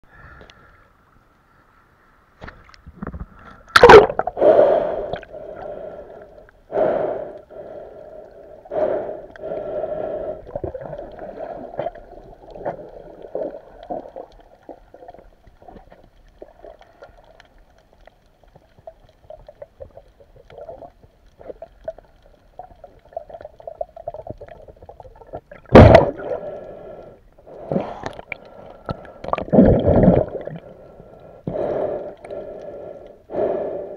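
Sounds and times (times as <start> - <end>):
muffled water sloshing and gurgling: 2.5 - 6.3, 7.6 - 33.0
sharp water splashes: 3.7 - 4.4.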